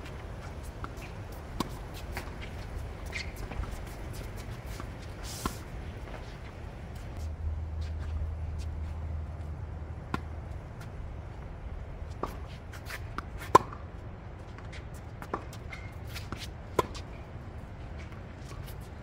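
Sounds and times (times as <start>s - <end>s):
sneakers scuffing on court: 0.0s - 11.5s, 14.4s - 17.2s
tennis ball hits and bounces: 0.1s - 7.3s, 10.1s - 10.9s, 12.2s - 13.9s, 14.5s - 17.2s.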